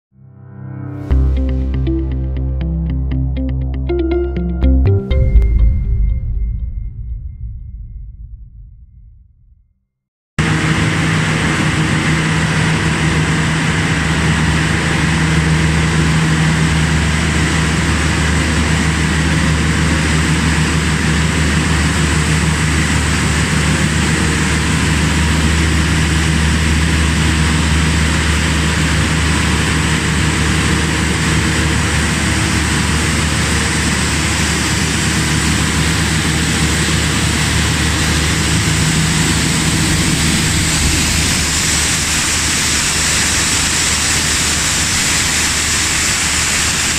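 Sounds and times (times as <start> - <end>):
machine drone with high whine: 5.2 - 9.6, 10.4 - 46.9.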